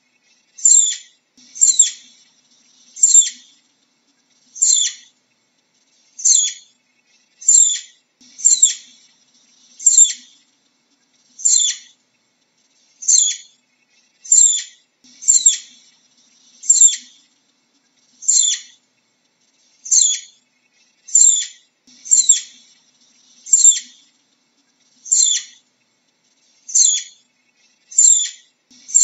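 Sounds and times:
squirrel high-pitched chirps: 0.6s - 2.1s, 3.0s - 3.5s, 4.6s - 5.1s, 6.2s - 6.7s, 7.4s - 9.0s, 9.8s - 10.4s, 11.4s - 12.0s, 13.0s - 13.6s, 14.2s - 15.8s, 16.6s - 17.2s, 18.2s - 18.8s, 19.8s - 20.4s, 21.1s - 22.7s, 23.4s - 24.1s, 25.0s - 25.6s, 26.6s - 27.2s, 27.9s - 29.0s.

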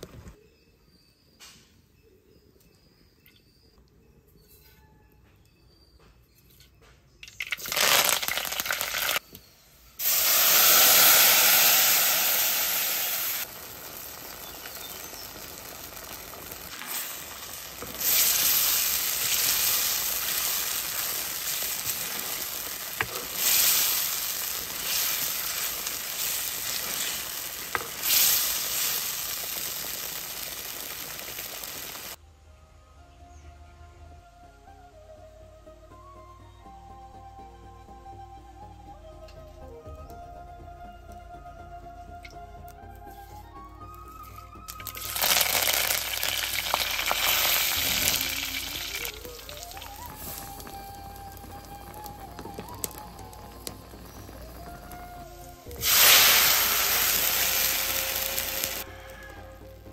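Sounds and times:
oil popping: 7.2s - 9.3s, 10.0s - 32.2s, 44.2s - 58.9s
seeds sizzling in hot oil: 7.2s - 32.2s, 43.8s - 59.9s.

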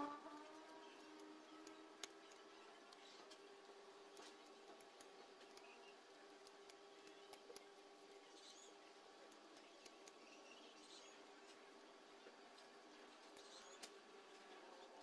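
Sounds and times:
low hum: 0.0s - 3.2s.

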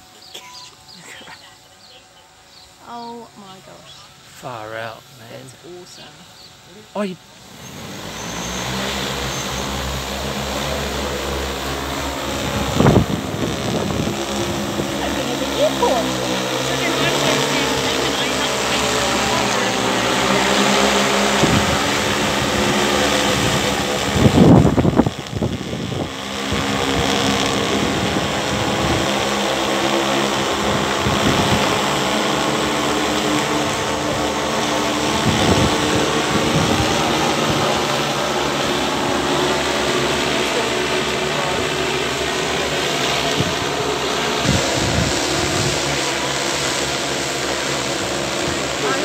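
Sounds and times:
drone propellers buzzing: 0.0s - 49.0s
loud low rumble: 33.5s - 46.2s.

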